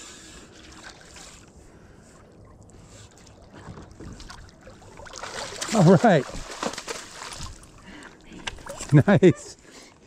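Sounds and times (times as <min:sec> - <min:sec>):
fish splashing at water surface: 0:04.8 - 0:07.7.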